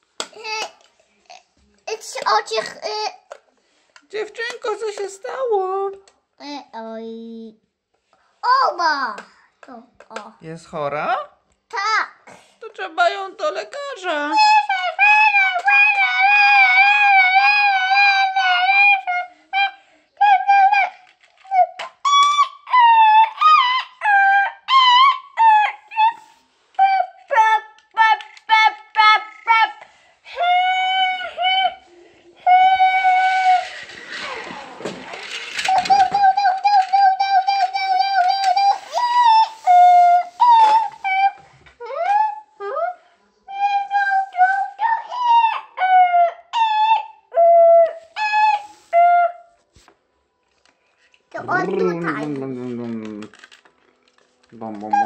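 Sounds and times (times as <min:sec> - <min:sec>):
child singing high: 0:14.4 - 0:26.2, 0:26.8 - 0:31.8
child vocalising high notes: 0:14.4 - 0:49.5.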